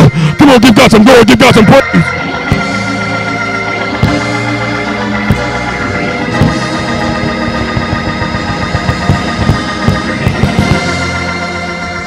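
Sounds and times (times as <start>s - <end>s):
church organ chords: 0.0s - 12.0s
short low thumps: 2.4s - 11.1s.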